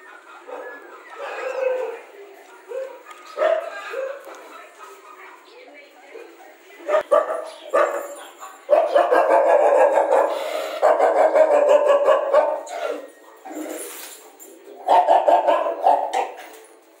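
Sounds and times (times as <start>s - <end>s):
dog barking in rapid runs: 8.7s - 12.7s, 14.9s - 16.4s.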